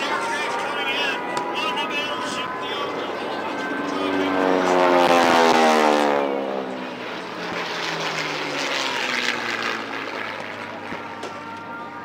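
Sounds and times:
propeller plane passing overhead: 0.0 - 12.0.

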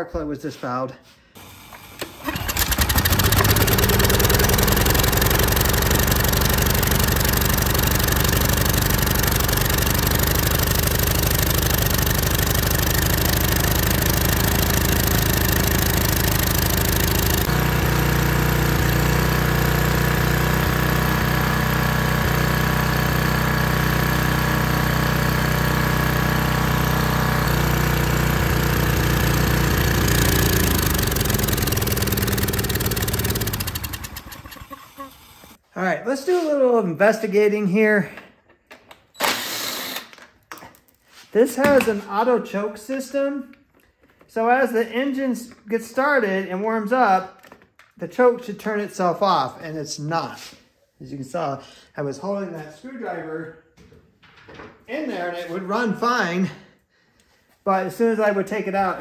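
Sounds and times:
pressure washer engine running: 1.4 - 35.6.

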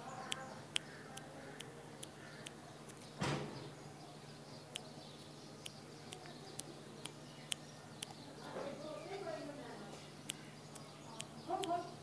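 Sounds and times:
sharp ticks: 0.2 - 3.1, 5.6 - 8.2, 10.2 - 11.9.

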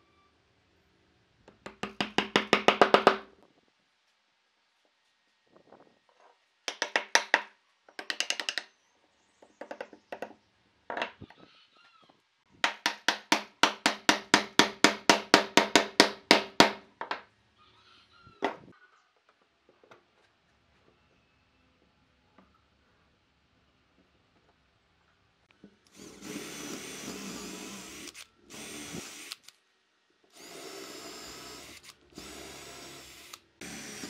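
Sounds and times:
wooden mallet knocking wood: 1.5 - 3.2.

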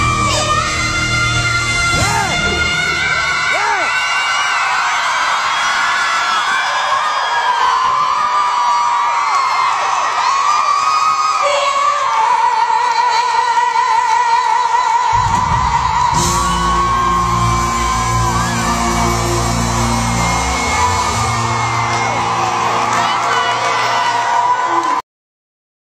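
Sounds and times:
audience whooping: 1.6 - 11.8, 15.1 - 25.0
band playing low chords: 15.2 - 24.0.

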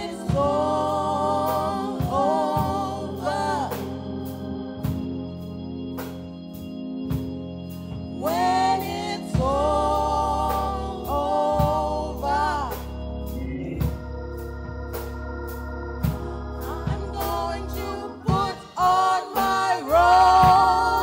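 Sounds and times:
women singing gospel: 0.0 - 5.4, 7.9 - 21.0
keyboard chords: 0.0 - 21.0
steady beat: 0.0 - 21.0.

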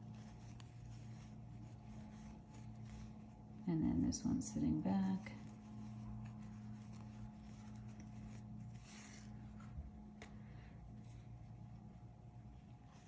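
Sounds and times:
yarn rustling over crochet hook: 0.0 - 10.2
low steady hum: 0.0 - 13.0.

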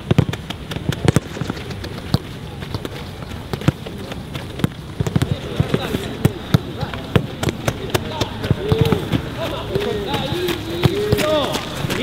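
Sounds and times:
football kicks thudding: 0.0 - 9.3.

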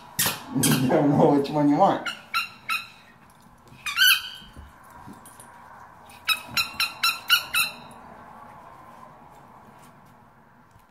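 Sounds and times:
toy ball squeaking: 2.0 - 3.1, 3.8 - 4.6, 6.2 - 7.9.

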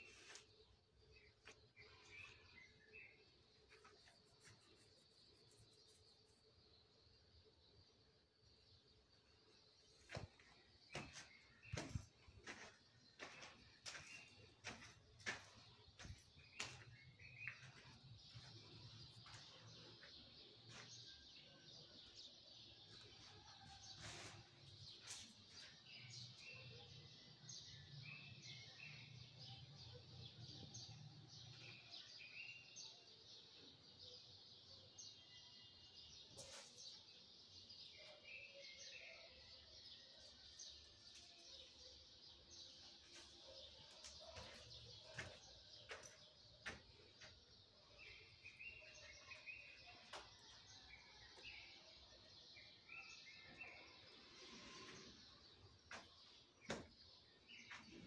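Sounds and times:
faint bird chirps: 0.0 - 34.1.

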